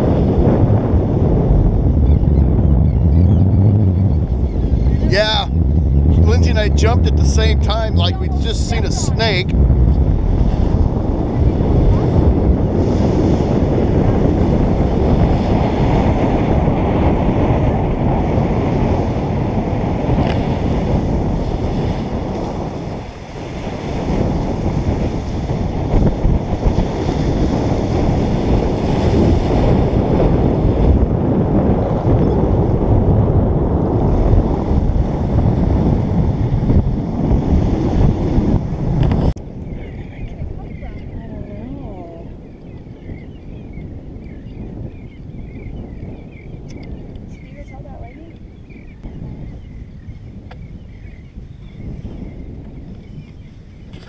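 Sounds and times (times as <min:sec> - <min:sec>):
wind buffeting microphone: 0:00.0 - 0:54.0
surf washing on shore: 0:03.5 - 0:42.6.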